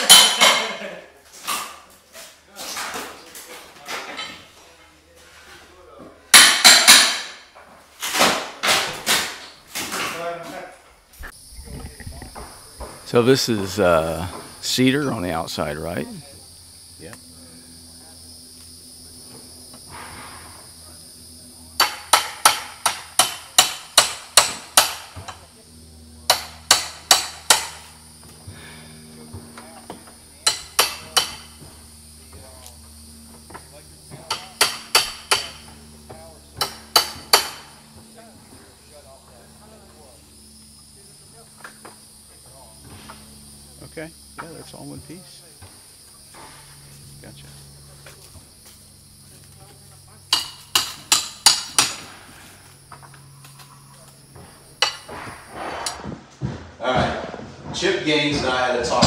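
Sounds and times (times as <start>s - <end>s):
hammer striking wood: 6.3s - 7.4s, 21.8s - 25.2s, 26.3s - 27.8s, 34.3s - 35.7s, 36.6s - 37.7s, 50.3s - 52.1s.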